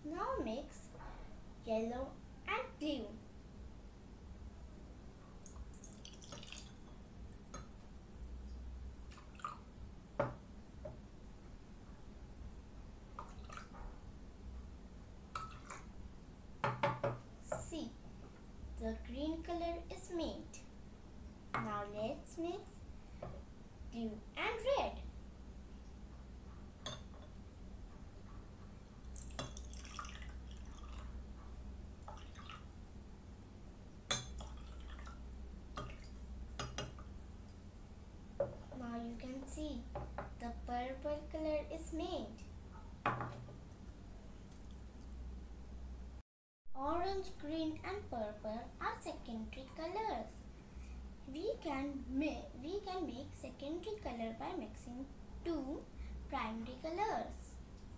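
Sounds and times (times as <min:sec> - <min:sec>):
liquid pouring into a glass: 0:05.7 - 0:06.9, 0:09.1 - 0:09.6, 0:29.1 - 0:31.2, 0:32.0 - 0:32.7, 0:34.4 - 0:35.2
cup knocking against glass: 0:10.2 - 0:10.4, 0:16.6 - 0:17.2, 0:43.0 - 0:43.6
glass clinking: 0:34.1 - 0:34.6.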